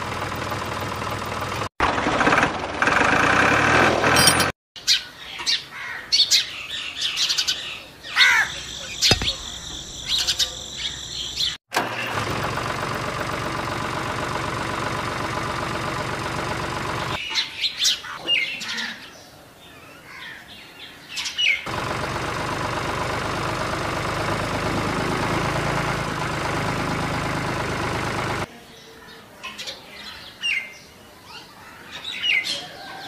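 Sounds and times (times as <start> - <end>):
birds chirping: 4.8 - 11.6.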